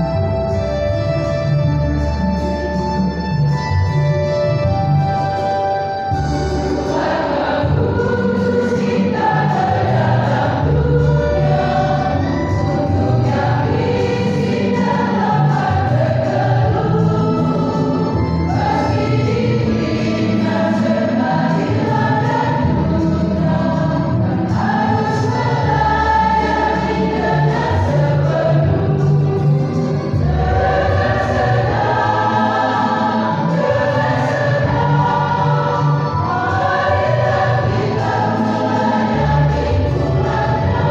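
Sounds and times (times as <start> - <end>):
church choir singing: 0.0 - 40.9.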